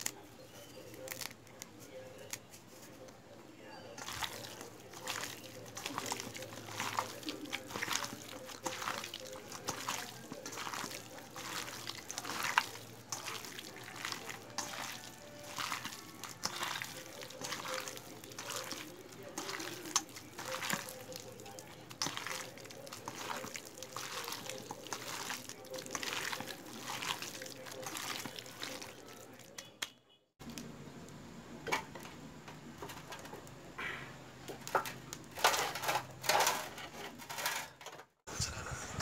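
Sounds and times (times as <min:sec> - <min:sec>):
hands squelching meat: 0:04.0 - 0:29.7.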